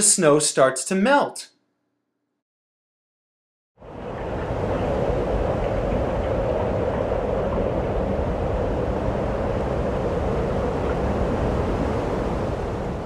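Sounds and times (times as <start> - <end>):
wind-like rushing noise: 3.8 - 13.0.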